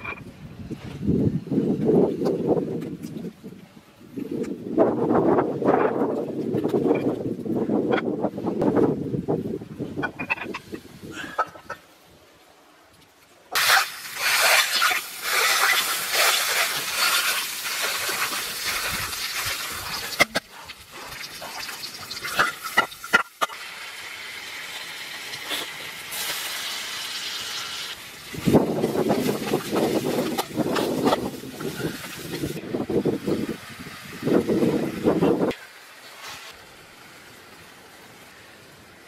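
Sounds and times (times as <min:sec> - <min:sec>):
onion sizzling in a pan: 0:13.6 - 0:32.6.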